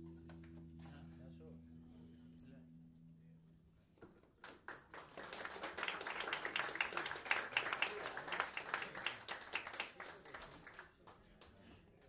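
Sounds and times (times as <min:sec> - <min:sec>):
audience clapping: 0:04.4 - 0:11.6.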